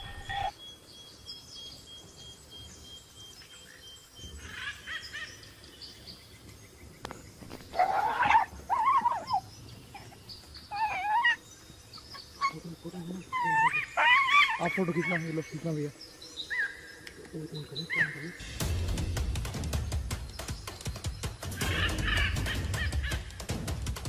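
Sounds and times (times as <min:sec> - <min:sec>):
animal yelping calls: 0:07.7 - 0:11.4, 0:12.4 - 0:15.3, 0:17.9 - 0:18.4.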